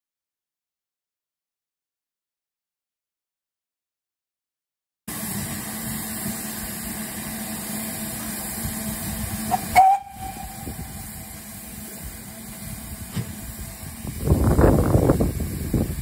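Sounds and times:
steady steam hiss: 0:05.1 - 0:16.0
steam locomotive whistle: 0:07.9 - 0:11.7.

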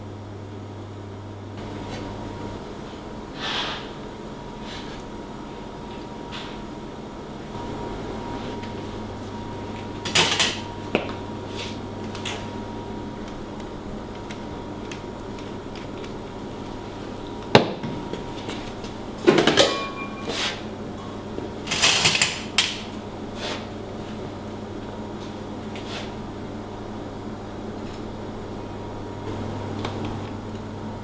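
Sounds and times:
steady low hum: 0:00.0 - 0:31.0
utensils clattering with metallic ring: 0:19.4 - 0:22.4.

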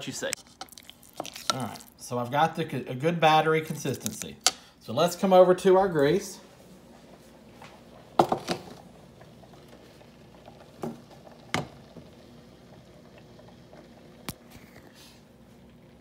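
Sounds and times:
frying grease bubbling: 0:00.4 - 0:02.1, 0:08.0 - 0:16.0.

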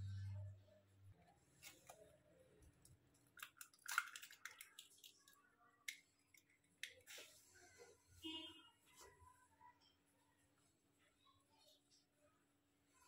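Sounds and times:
egg shell cracking: 0:02.8 - 0:07.0.

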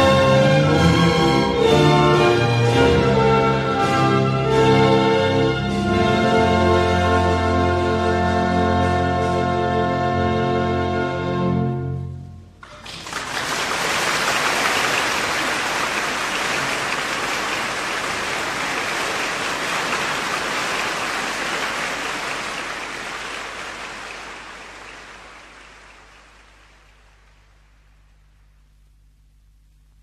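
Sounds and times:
audience applauding: 0:12.6 - 0:28.0.

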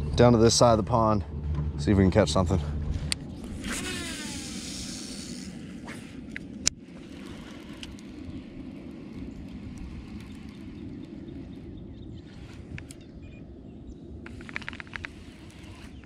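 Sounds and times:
electric trolling motor humming: 0:02.7 - 0:13.0
falling whirr: 0:03.4 - 0:06.6.

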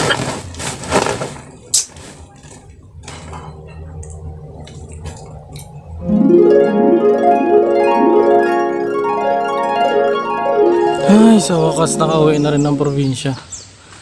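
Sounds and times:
low steady hum: 0:02.1 - 0:13.6
harp arpeggios: 0:03.4 - 0:13.4.

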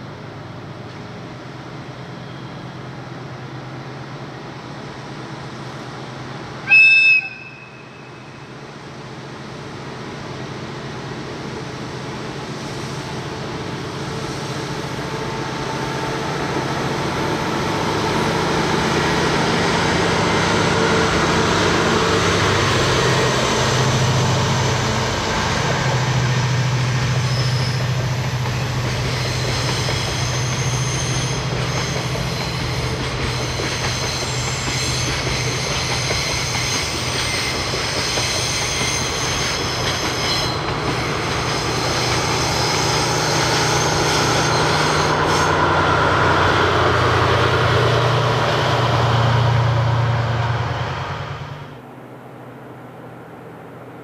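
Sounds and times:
diesel locomotive engine droning: 0:00.0 - 0:54.0
high wheel squeal: 0:27.0 - 0:46.3.

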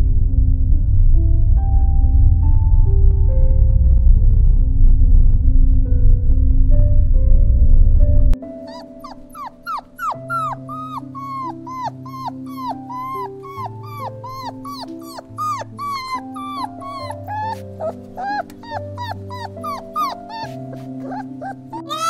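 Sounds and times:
background music: 0:00.0 - 0:22.0
dog yipping and whimpering: 0:08.6 - 0:22.0.

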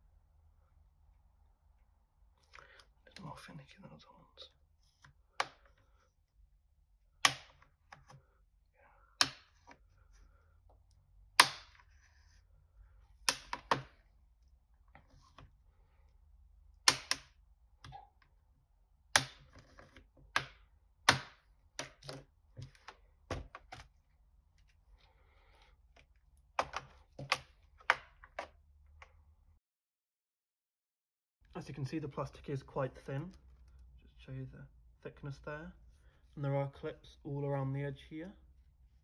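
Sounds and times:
plastic clips snapping: 0:07.2 - 0:08.1, 0:11.4 - 0:11.8, 0:13.2 - 0:14.0, 0:16.8 - 0:18.0.

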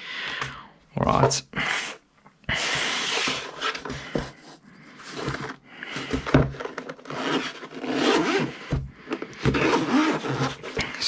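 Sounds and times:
fabric scraping against wood: 0:01.7 - 0:08.8, 0:09.4 - 0:11.0.

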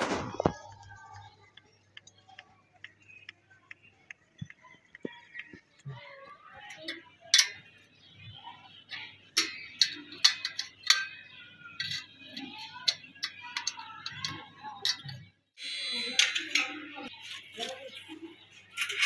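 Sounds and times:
metallic clicks of brackets and bolts: 0:06.7 - 0:07.8, 0:08.9 - 0:15.2, 0:16.0 - 0:17.1, 0:18.7 - 0:19.0.

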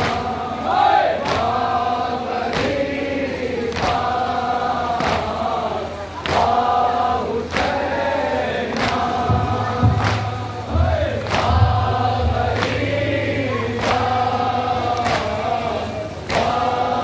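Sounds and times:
men chanting in unison: 0:00.0 - 0:17.0
chest-beating slaps: 0:08.8 - 0:13.2.

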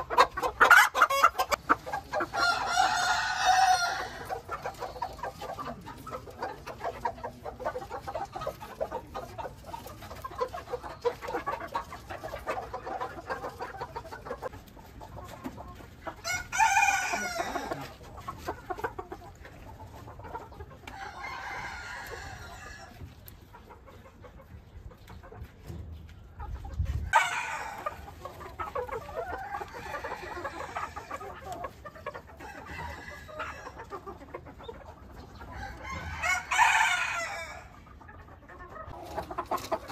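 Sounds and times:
chickens clucking: 0:00.0 - 0:39.9
rooster crowing: 0:02.4 - 0:04.2.

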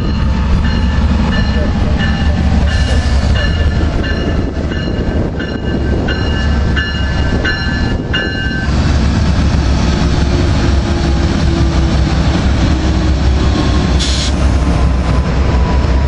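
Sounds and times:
locomotive bell ringing: 0:00.0 - 0:08.8
diesel locomotive passing: 0:00.0 - 0:16.0.

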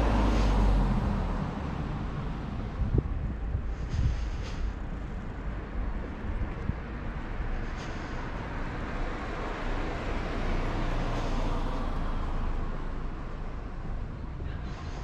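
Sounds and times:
vehicle passing by: 0:00.0 - 0:03.2, 0:05.3 - 0:14.0
low traffic rumble: 0:00.0 - 0:15.0.

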